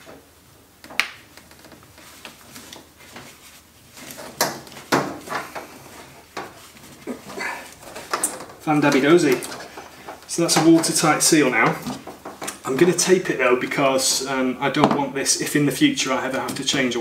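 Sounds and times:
plastic hose rubbing and creaking: 0.8 - 15.0.

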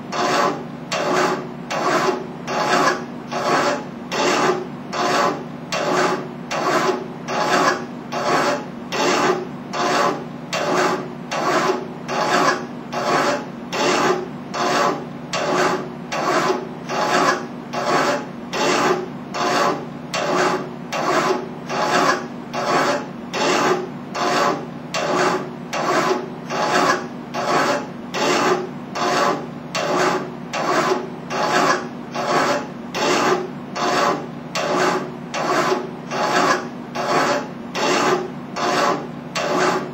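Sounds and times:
hand file rasping on metal: 0.1 - 39.9.

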